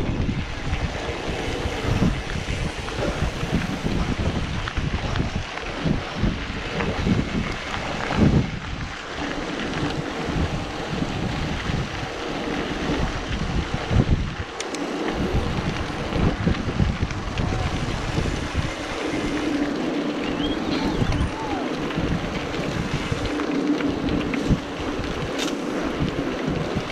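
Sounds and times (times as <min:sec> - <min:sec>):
tyre noise on road: 0:00.0 - 0:26.9
wind buffeting microphone: 0:00.0 - 0:26.9
bike knocks and rattles: 0:22.6 - 0:26.9.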